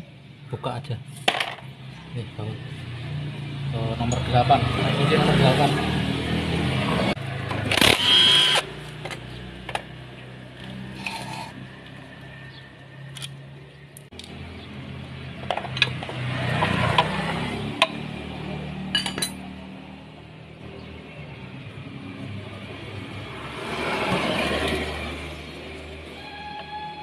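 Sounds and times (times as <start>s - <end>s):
tools clinking on metal cover: 18.9s - 19.4s.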